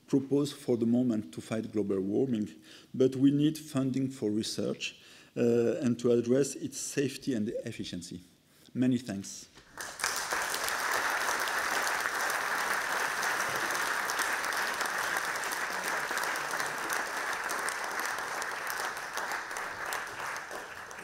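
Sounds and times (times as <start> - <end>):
audience applauding: 9.7 - 21.0.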